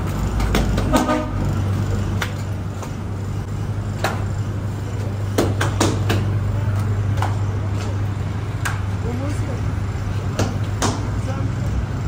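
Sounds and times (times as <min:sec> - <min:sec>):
sharp knocks and clatters: 0:00.0 - 0:03.0, 0:05.3 - 0:06.4, 0:10.3 - 0:11.2
low hum of bakery machinery: 0:00.0 - 0:12.0.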